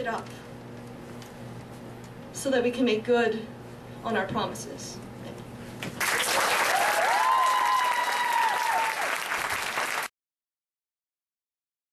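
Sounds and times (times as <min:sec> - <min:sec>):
audience applauding: 0:06.0 - 0:10.1
voices cheering: 0:06.4 - 0:09.5.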